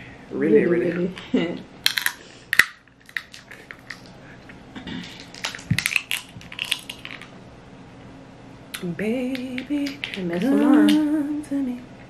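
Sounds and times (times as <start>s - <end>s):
person chewing crab: 1.9s - 7.3s.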